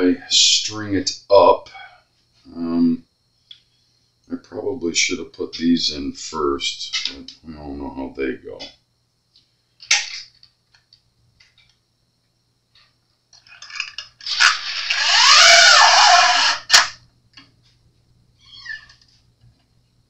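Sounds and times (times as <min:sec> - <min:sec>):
bass string scraping through bridge: 0:14.3 - 0:17.0.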